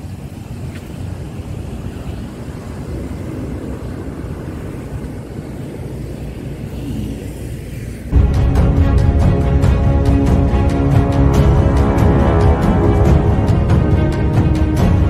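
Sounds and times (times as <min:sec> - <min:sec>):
wind blowing on microphone: 0:00.0 - 0:08.4
surf breaking on shore: 0:00.0 - 0:09.6.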